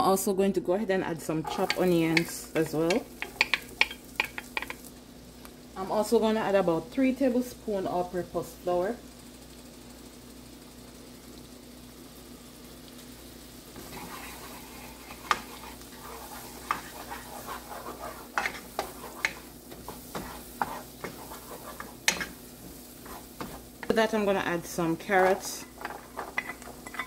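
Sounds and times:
butter and onions sizzling: 1.0 - 27.0
wooden spoon scraping pan: 1.4 - 4.8, 13.8 - 27.0
spoon knocking against pan: 1.6 - 4.8, 18.4 - 22.4.

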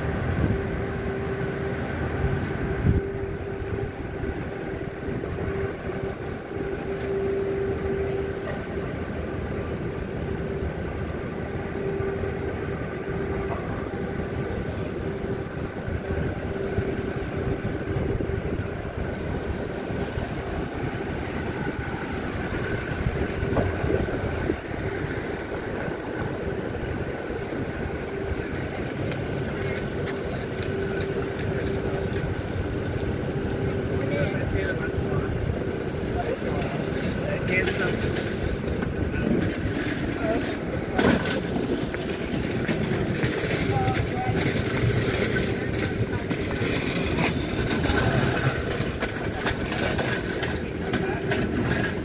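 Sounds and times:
constant droning hum: 0.0 - 52.0
low street rumble: 0.0 - 52.0.

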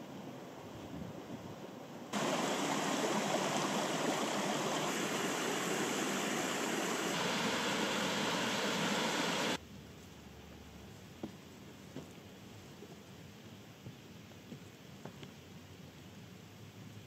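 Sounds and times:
faint hiss: 0.0 - 17.0
stream running over stones: 2.1 - 9.6.

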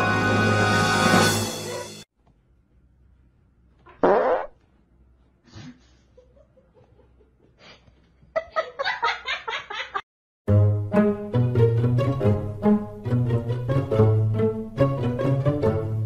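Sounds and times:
person farting: 3.9 - 4.6.

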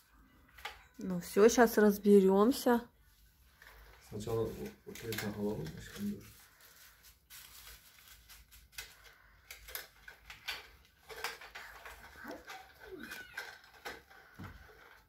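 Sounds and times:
packaging rustling: 3.2 - 15.0
hands handling plastic toy: 3.4 - 15.0.

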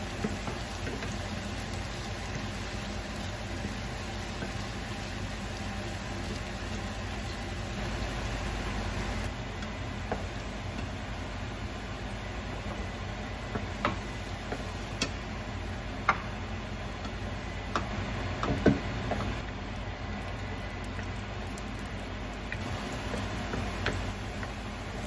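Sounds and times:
wooden spoon knocking on frying pan: 9.6 - 10.9, 13.4 - 15.2, 16.0 - 16.4, 17.0 - 19.3.

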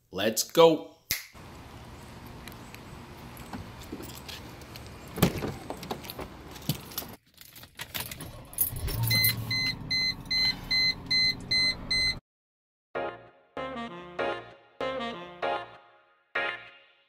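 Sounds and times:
car keys jangling: 2.3 - 9.5
car warning chime beeping: 9.1 - 12.2.

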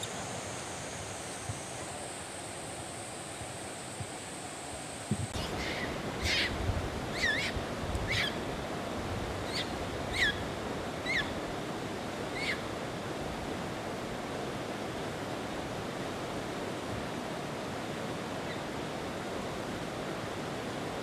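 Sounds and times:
running water rushing: 0.0 - 21.0
high chirping calls: 5.4 - 8.4.

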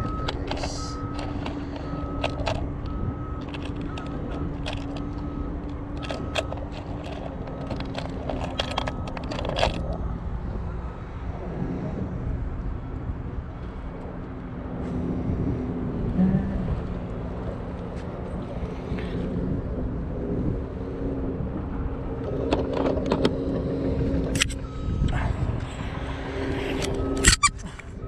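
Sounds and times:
low machinery engine hum: 0.0 - 28.0
lures rattling in plastic box: 3.4 - 5.2, 6.0 - 10.0.

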